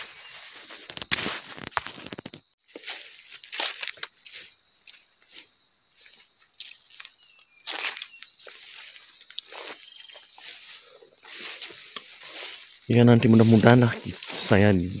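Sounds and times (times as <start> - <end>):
bird chirps: 0.0 - 0.9, 6.7 - 15.0
footsteps through undergrowth: 0.0 - 15.0
insects droning: 0.0 - 15.0.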